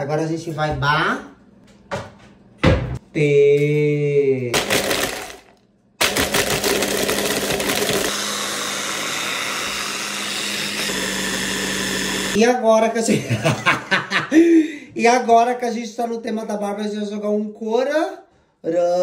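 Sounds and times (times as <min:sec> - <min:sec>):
electric blender running: 0:04.6 - 0:12.4.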